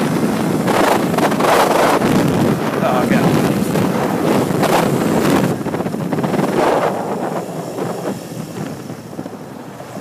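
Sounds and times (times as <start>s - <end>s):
wind rushing over microphone: 0.0s - 10.0s.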